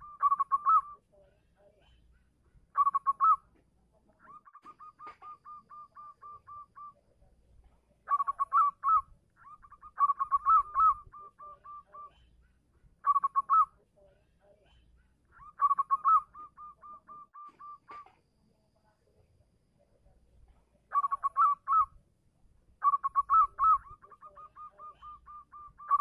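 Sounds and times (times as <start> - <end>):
dove cooing: 0.0 - 1.0, 2.8 - 3.4, 4.2 - 7.0, 8.1 - 12.2, 13.0 - 13.7, 15.4 - 18.2, 20.9 - 21.9, 22.8 - 26.0.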